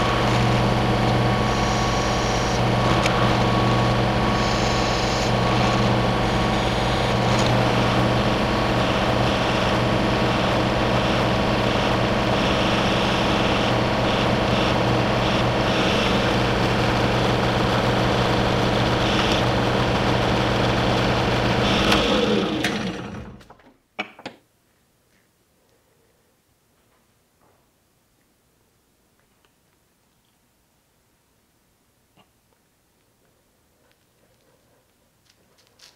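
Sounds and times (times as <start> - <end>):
drill press drilling metal: 0.0 - 23.4
motor spinning down hum: 0.0 - 23.4.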